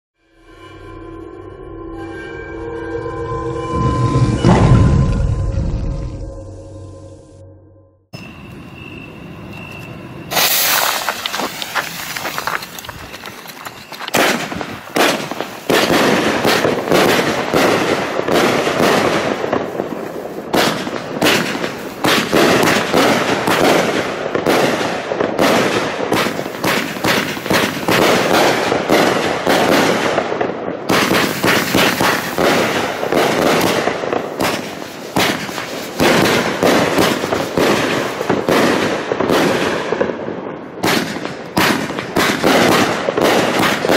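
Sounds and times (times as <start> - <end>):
rapid firework shots: 14.1 - 40.2, 40.8 - 43.9.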